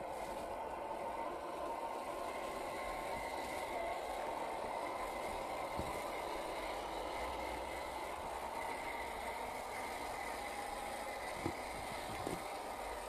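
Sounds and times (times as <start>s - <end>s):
electric motor and gears whining: 0.0s - 13.0s.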